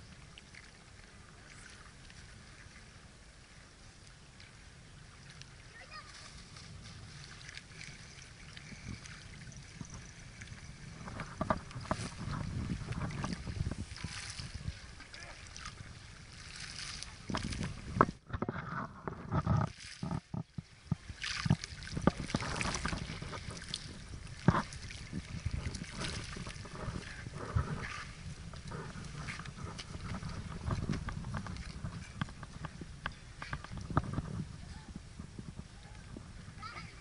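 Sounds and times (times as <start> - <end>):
wind buffeting microphone: 4.6 - 37.0.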